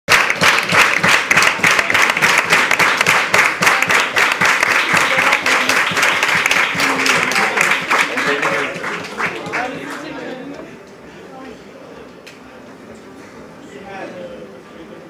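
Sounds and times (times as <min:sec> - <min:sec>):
audience applauding: 0:00.1 - 0:10.3.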